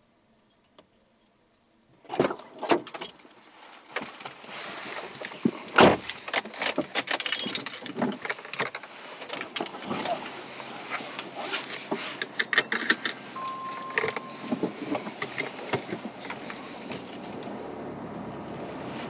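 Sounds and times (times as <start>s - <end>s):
rustling: 3.5s - 17.7s
keys jangling: 7.0s - 8.0s
person climbing into car seat: 9.3s - 17.7s
car door opening: 12.4s - 17.6s
car door shutting: 13.4s - 17.6s.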